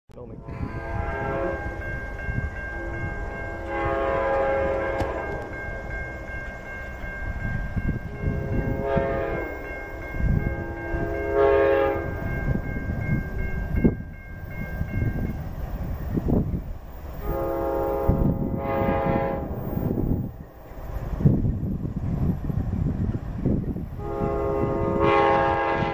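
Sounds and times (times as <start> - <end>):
diesel locomotive rumble: 0.1 - 25.9
locomotive horn blasts: 0.4 - 1.9, 2.6 - 5.6, 8.1 - 12.2, 17.2 - 20.1, 24.0 - 25.9.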